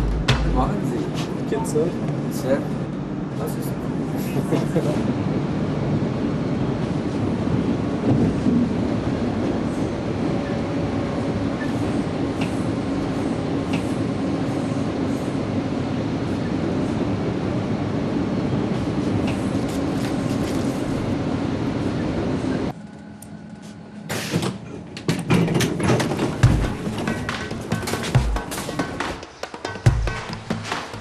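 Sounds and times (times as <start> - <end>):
subway train rumble: 0.0 - 31.0.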